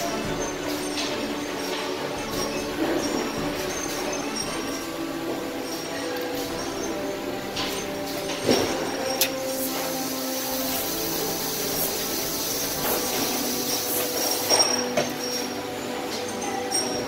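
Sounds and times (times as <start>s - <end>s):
hissing air: 6.4s - 15.6s.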